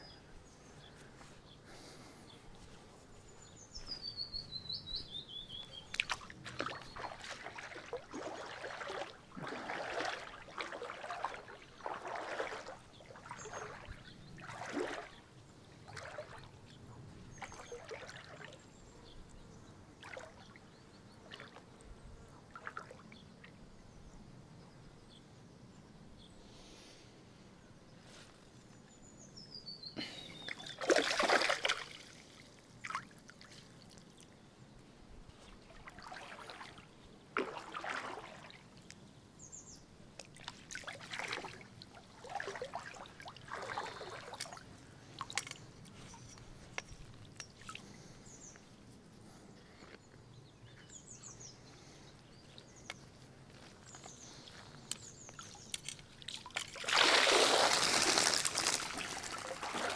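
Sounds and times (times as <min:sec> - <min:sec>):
water splashing and trickling: 0:05.0 - 0:18.9, 0:20.0 - 0:21.8, 0:22.5 - 0:23.6, 0:30.0 - 0:48.6, 0:51.8 - 0:59.9
water draining through mesh: 0:05.9 - 0:15.2, 0:56.2 - 0:59.9.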